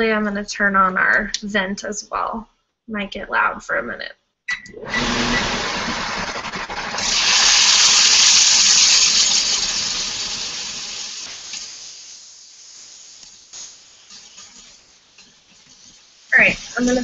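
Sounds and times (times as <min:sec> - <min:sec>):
meat sizzling in hot oil: 0:04.9 - 0:17.0.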